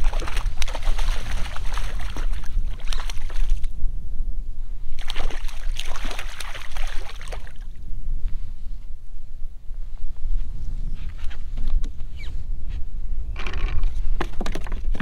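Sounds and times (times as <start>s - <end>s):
fish splashing at water surface: 0.0s - 3.6s, 5.0s - 7.6s
wind rumble on microphone: 0.0s - 15.0s.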